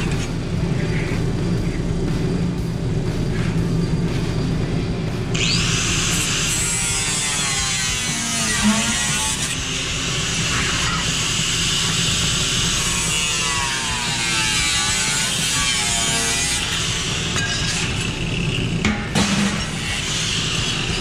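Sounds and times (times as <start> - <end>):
angle grinder cutting sheet steel: 5.3 - 21.0.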